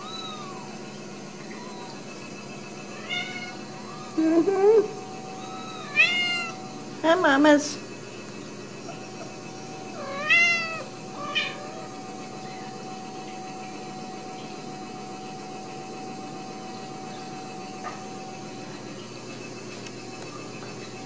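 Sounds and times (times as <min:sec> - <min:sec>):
cat meowing: 0:00.0 - 0:00.7, 0:02.9 - 0:04.2, 0:05.4 - 0:06.6, 0:10.0 - 0:11.9
faint steady hum: 0:00.0 - 0:21.0.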